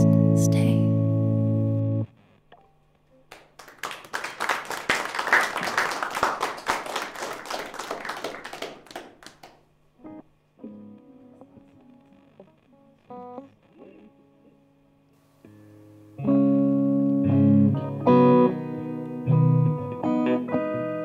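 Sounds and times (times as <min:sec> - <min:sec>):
electric guitar notes: 0:00.0 - 0:03.4, 0:08.5 - 0:21.0
audience clapping: 0:03.2 - 0:09.7.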